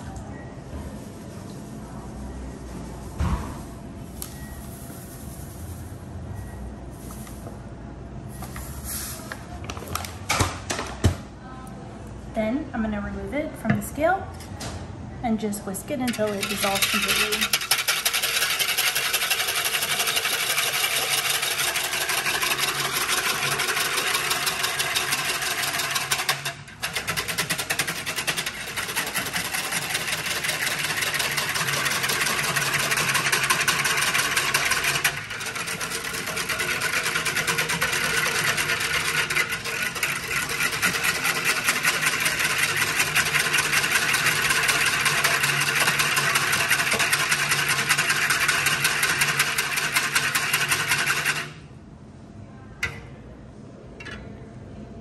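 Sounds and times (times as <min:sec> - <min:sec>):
wire whisk scraping a pitcher: 0:16.0 - 0:51.5.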